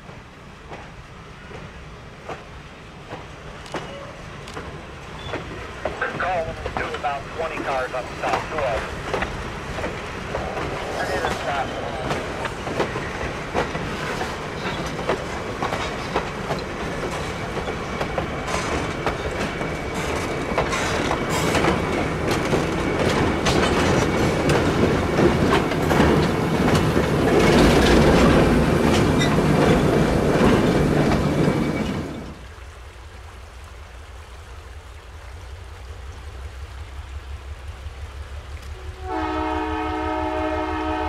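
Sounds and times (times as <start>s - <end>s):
wheels clicking over rail joints: 0.0s - 32.3s.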